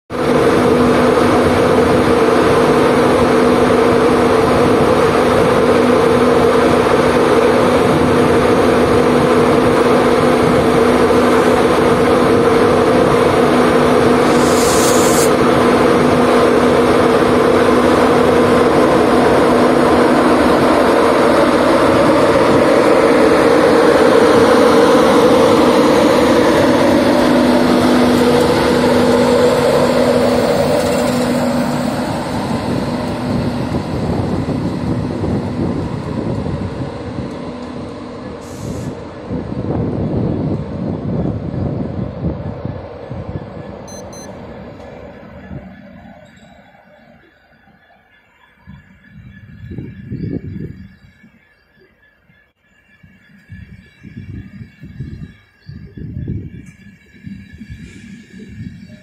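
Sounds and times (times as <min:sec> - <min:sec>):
electric locomotive humming: 0:00.1 - 0:59.0
short hiss: 0:14.2 - 0:15.3.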